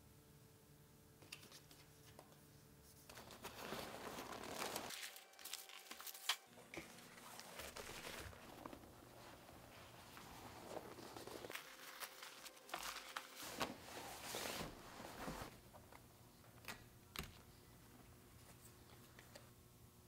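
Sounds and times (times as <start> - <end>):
fabric bag rustling: 3.2 - 5.9, 6.9 - 15.6.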